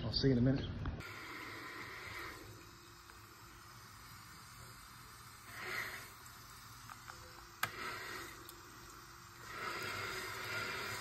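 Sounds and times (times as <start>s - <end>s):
water rushing from toilet tank: 1.0s - 11.0s
toilet flush mechanism click: 6.8s - 9.0s.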